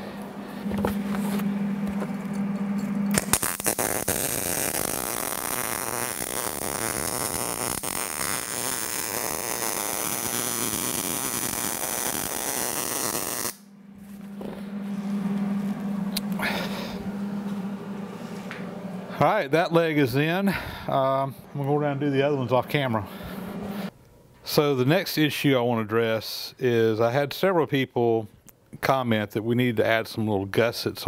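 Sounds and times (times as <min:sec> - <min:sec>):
steady low hum: 0:00.0 - 0:28.9
welding arc crackling: 0:03.1 - 0:13.7.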